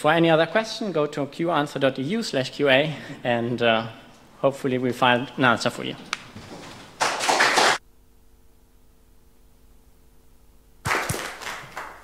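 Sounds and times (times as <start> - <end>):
audience applause: 7.0 - 7.8, 10.8 - 12.0
faint steady hum: 7.8 - 12.0.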